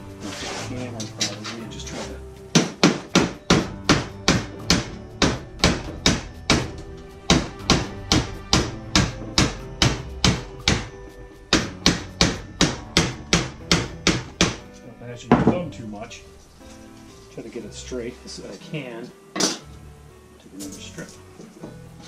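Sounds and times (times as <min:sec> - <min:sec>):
hammer striking sheet metal: 0:02.6 - 0:10.9.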